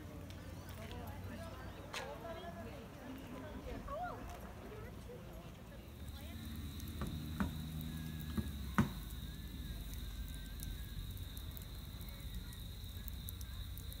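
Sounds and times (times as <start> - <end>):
campfire crackling: 0.0 - 14.0
fire popping: 3.3 - 14.0.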